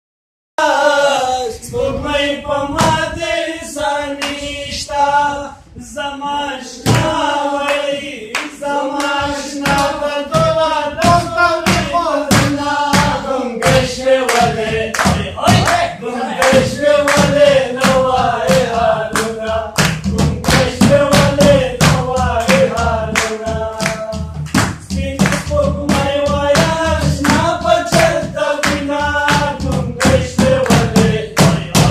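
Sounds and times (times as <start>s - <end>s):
men singing unaccompanied: 0.6s - 31.9s
hand claps: 4.2s - 4.4s, 6.9s - 31.9s.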